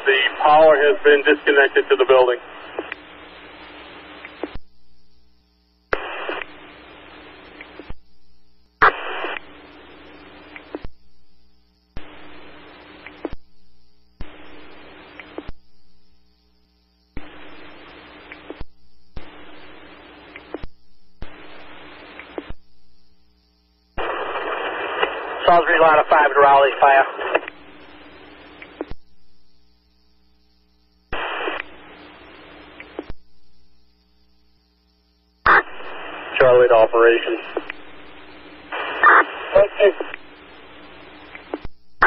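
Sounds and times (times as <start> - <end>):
radio static bursts: 0.0 - 4.6, 5.9 - 8.0, 8.8 - 10.9, 11.9 - 13.4, 14.2 - 15.6, 17.1 - 22.6, 24.0 - 29.0, 29.8 - 33.2, 34.6 - 42.0
low hum: 0.0 - 36.4.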